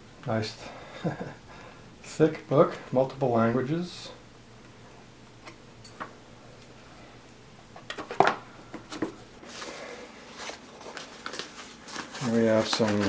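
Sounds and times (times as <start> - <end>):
packing paper rustling: 9.4 - 13.0.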